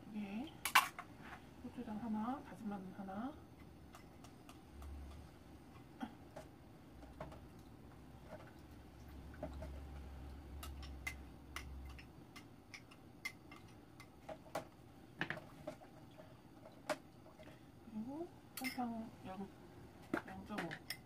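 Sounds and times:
metal spoon clinking on bowl: 18.6s - 18.8s.

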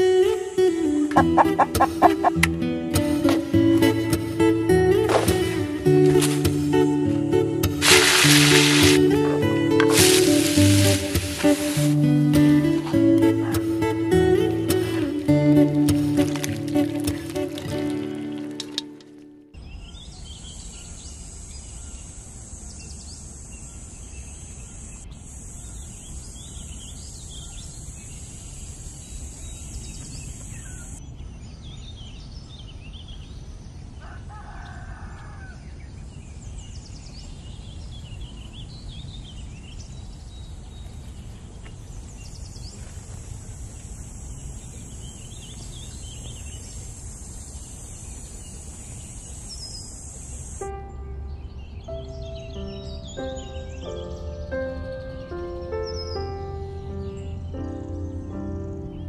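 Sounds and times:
small birds chirping: 0.0s - 2.4s, 19.6s - 59.0s
steady high hiss: 4.1s - 13.1s, 20.5s - 31.0s, 41.8s - 50.9s
rooster crowing: 34.0s - 35.7s.

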